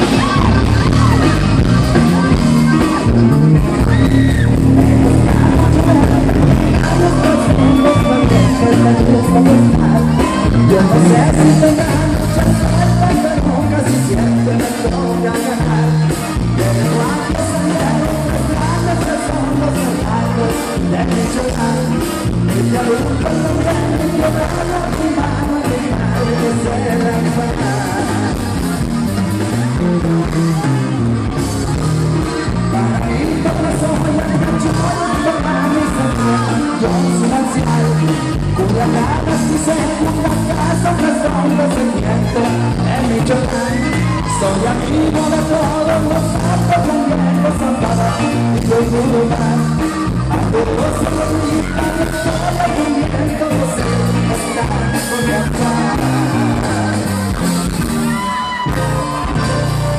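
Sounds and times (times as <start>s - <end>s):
accordion: 0.0s - 59.9s
man singing: 0.0s - 59.9s
steady bass beat: 0.0s - 59.9s.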